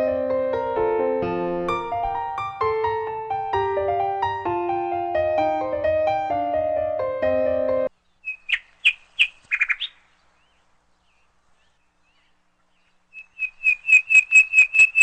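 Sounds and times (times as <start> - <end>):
piano music: 0.0 - 7.9
small bird chirping: 7.9 - 15.0.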